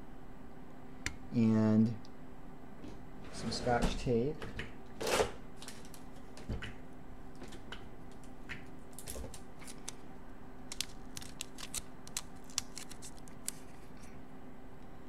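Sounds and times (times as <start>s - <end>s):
faint steady hum: 0.0s - 15.0s
tape clicks and crinkles: 5.6s - 6.1s, 7.4s - 14.2s
tape being pulled off: 10.7s - 14.1s.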